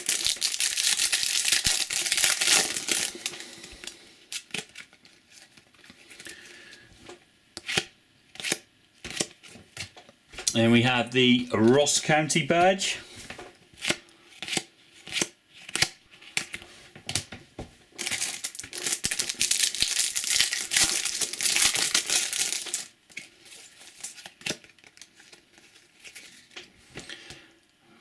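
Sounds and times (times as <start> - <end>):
foil packet crinkling: 0.0 - 6.4, 18.0 - 26.6.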